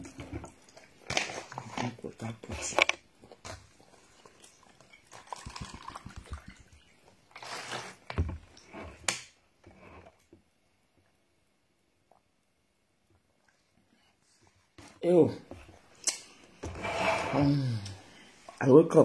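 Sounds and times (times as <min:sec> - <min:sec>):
water poured into plastic cup: 0:03.5 - 0:08.7.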